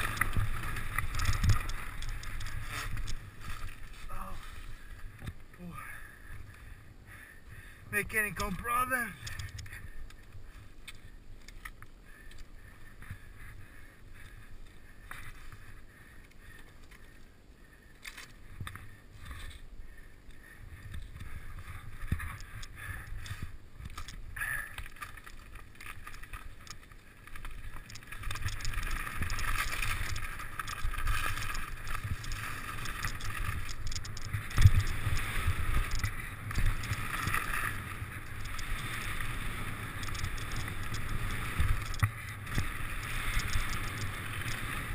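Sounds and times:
bike rattling over ground: 0.0 - 5.4, 20.8 - 44.9
bike clicks: 0.0 - 44.9
bike tyres rolling on dirt: 0.0 - 44.9.

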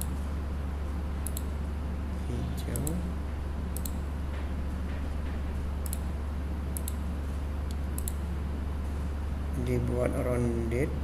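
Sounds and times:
steady low hum: 0.0 - 11.0
computer mouse clicks: 1.2 - 1.5, 3.8 - 4.0, 5.8 - 6.1, 6.8 - 7.0, 7.7 - 8.2.

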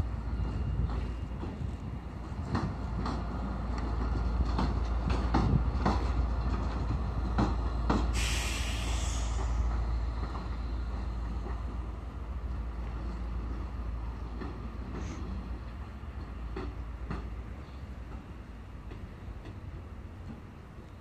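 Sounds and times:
diesel locomotive drone: 0.0 - 21.0
hiss: 8.0 - 9.9.

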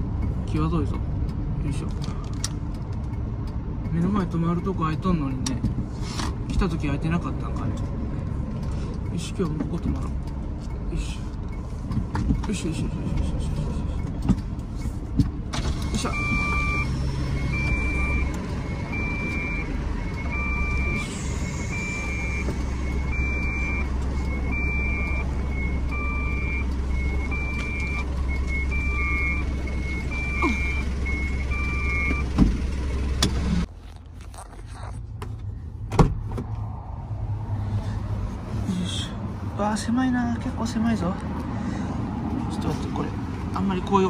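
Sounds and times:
car engine idling: 6.8 - 35.8
reverse warning beeper: 16.0 - 32.4.

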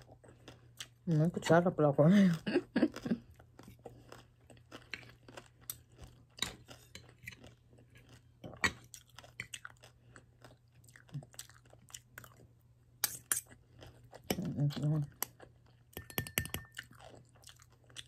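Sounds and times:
close-up chewing: 0.0 - 1.1, 2.3 - 12.6, 13.3 - 16.0, 16.7 - 18.0
cutlery clicking and scraping dish: 16.0 - 16.8.

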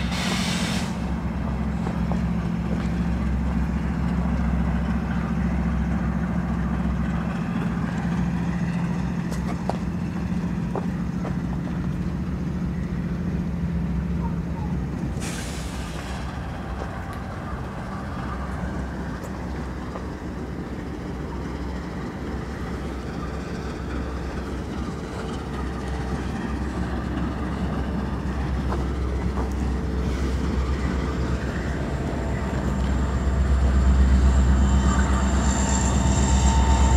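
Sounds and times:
diesel locomotive rumble: 0.0 - 36.9
thin high whine: 31.4 - 36.9.

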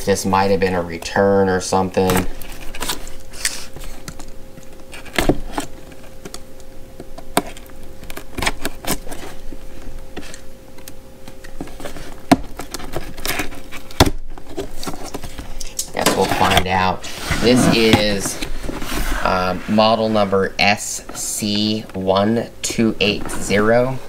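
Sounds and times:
cardboard scraping and crinkling: 11.6 - 22.0.

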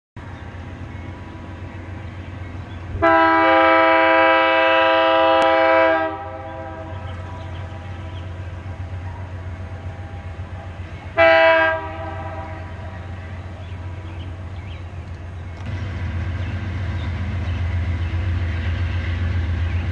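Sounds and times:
locomotive rumble: 0.2 - 19.9
locomotive air horn: 3.0 - 7.1, 11.2 - 12.9.

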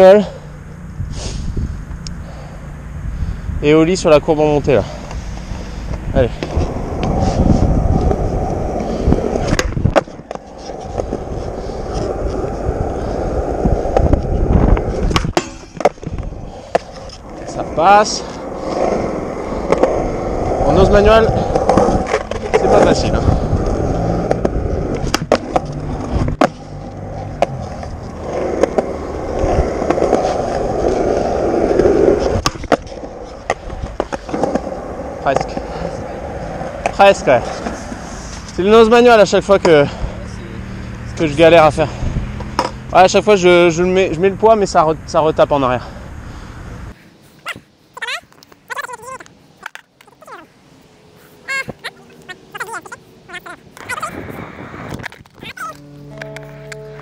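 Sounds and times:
skateboard wheels rumbling: 3.2 - 57.0
skateboard clacks: 7.9 - 17.6, 18.3 - 38.0.

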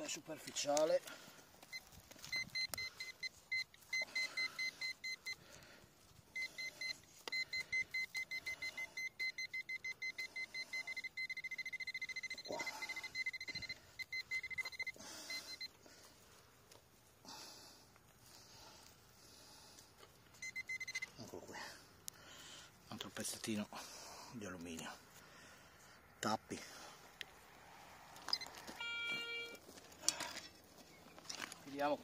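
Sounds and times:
pinpointer probe beeping: 1.7 - 5.6, 6.3 - 15.8, 20.3 - 21.2, 28.3 - 29.6.

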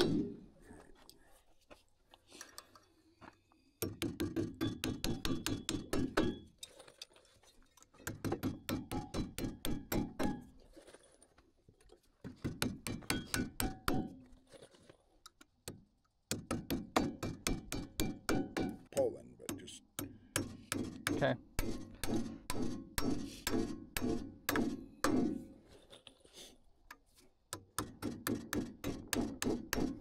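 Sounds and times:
hammer tapping nails into metal: 3.8 - 6.4, 8.0 - 10.4, 12.4 - 14.2, 15.6 - 18.9, 19.5 - 25.4, 27.5 - 30.0.

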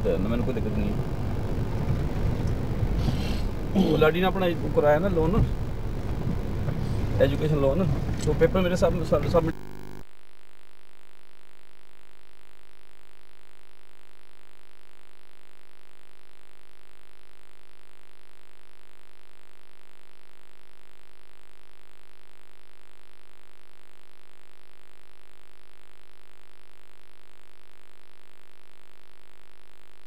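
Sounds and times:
faint hiss: 0.0 - 10.0
steady electrical hum: 0.0 - 30.0.

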